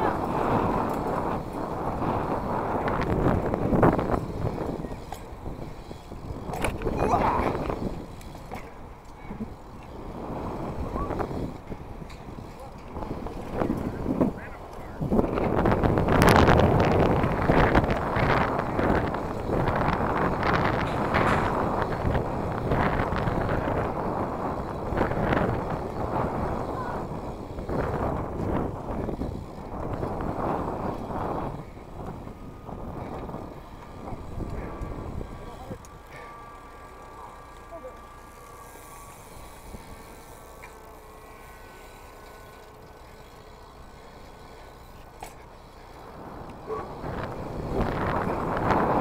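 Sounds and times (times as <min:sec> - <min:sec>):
wind rushing over microphone: 0:00.0 - 0:35.9, 0:45.8 - 0:49.0
bike tyres rolling over dirt: 0:00.0 - 0:49.0.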